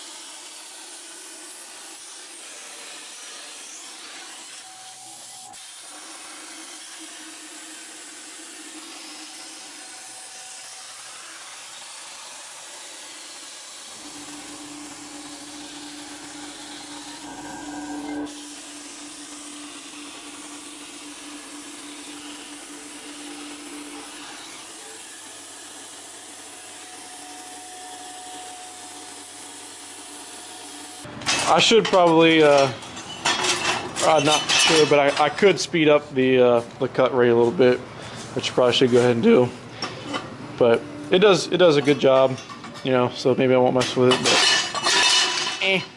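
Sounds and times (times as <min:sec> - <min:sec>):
plasma cutter arc hissing: 0:00.0 - 0:31.8.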